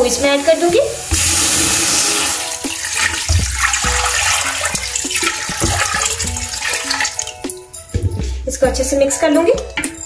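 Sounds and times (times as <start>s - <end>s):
water pouring into a pot: 0.0s - 7.8s.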